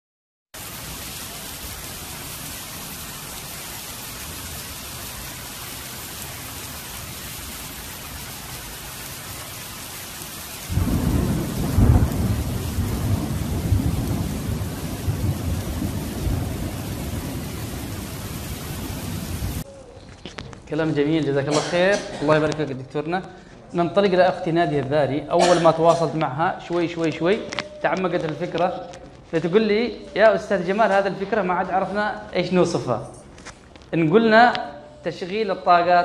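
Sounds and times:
heavy rain on street: 0.6s - 19.7s
thunder rumble: 10.6s - 19.7s.

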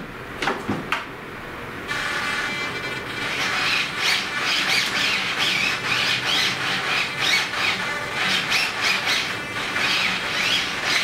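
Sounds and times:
servos whining: 1.9s - 11.0s.

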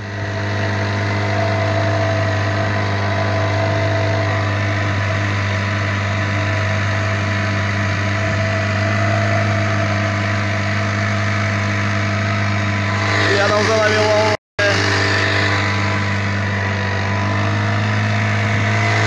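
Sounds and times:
outboard motor droning: 0.0s - 19.0s.

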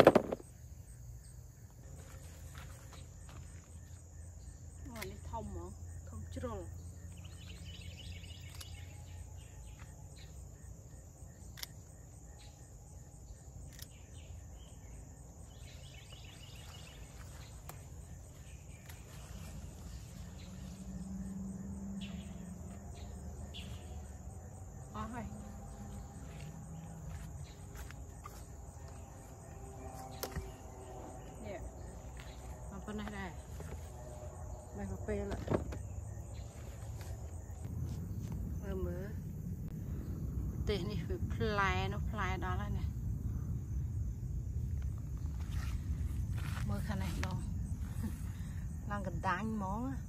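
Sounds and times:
insects chorus: 0.0s - 50.0s
leaves rustling: 15.5s - 34.7s, 36.2s - 38.2s, 44.6s - 48.8s.

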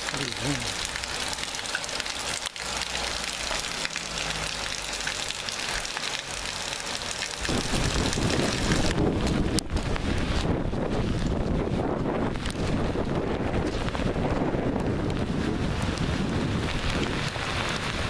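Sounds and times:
heavy rain hissing: 0.0s - 18.0s
wind buffeting microphone: 7.4s - 18.0s.

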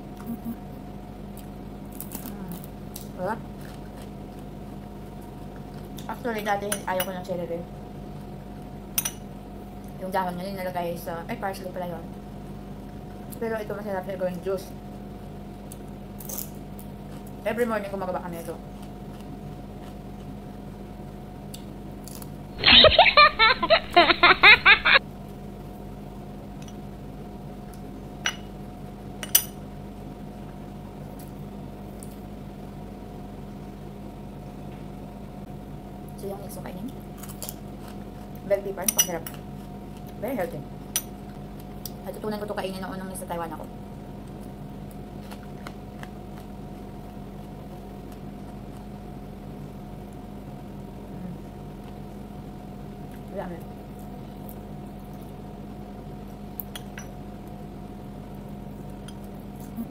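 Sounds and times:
low room hum: 0.0s - 59.9s
crunches of pepper being chewed: 44.3s - 49.0s.

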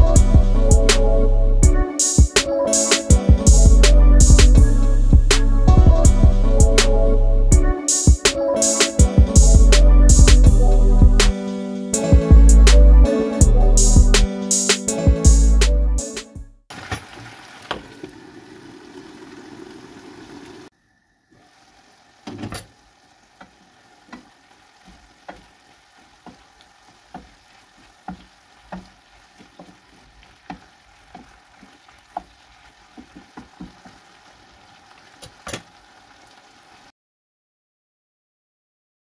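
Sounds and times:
food sizzling in a pan: 16.7s - 20.7s, 21.3s - 36.9s.

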